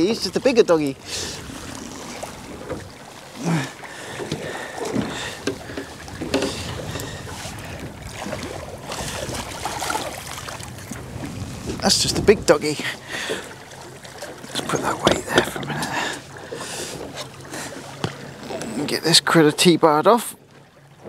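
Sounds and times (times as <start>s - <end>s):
water slapping against boat hull: 0.0s - 19.8s
wind on microphone: 4.3s - 13.4s.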